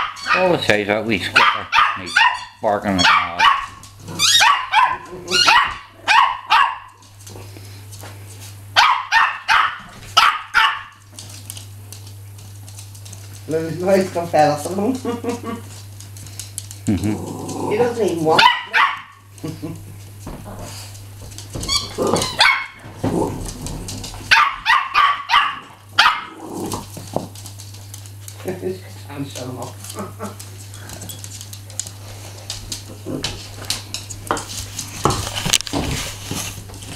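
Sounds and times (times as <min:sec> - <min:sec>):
small dog barking: 0:00.0 - 0:00.6, 0:01.3 - 0:07.0, 0:08.8 - 0:11.0, 0:18.3 - 0:19.2, 0:22.3 - 0:22.8, 0:24.3 - 0:26.4.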